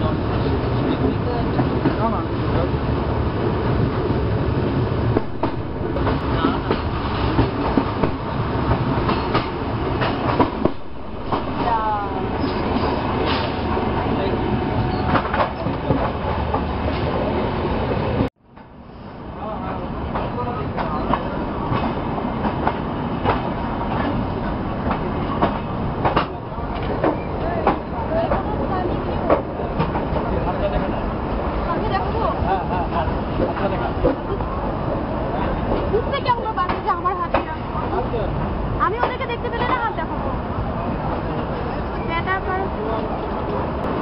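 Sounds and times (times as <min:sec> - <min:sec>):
train low rumble: 0:00.0 - 0:44.0
wheels clacking on track: 0:05.1 - 0:14.1, 0:20.1 - 0:30.9, 0:35.6 - 0:40.0.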